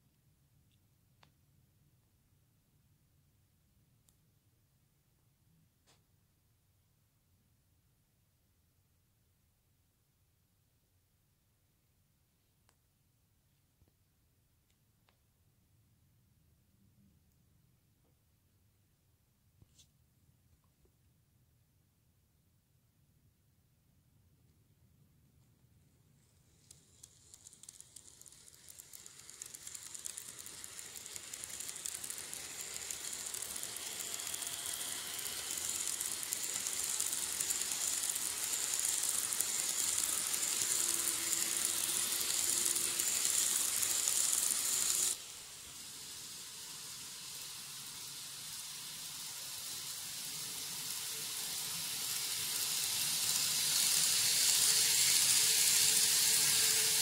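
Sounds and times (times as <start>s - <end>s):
model train running on track: 26.2s - 57.0s.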